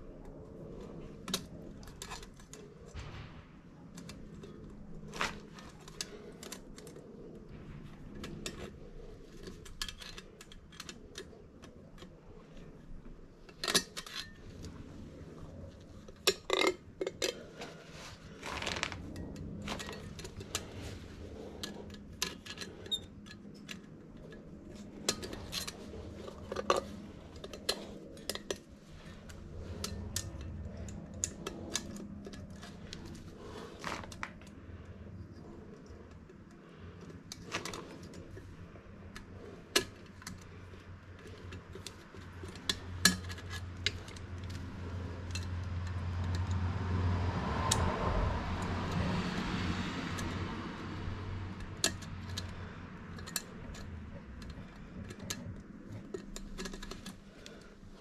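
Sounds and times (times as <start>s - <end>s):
metal tools clinking: 16.0s - 34.2s, 39.1s - 46.6s.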